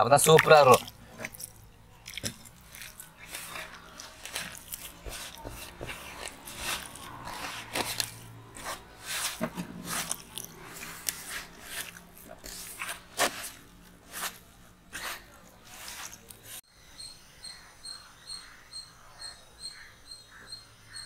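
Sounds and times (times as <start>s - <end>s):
hand squeezing thick batter: 0.0s - 16.6s.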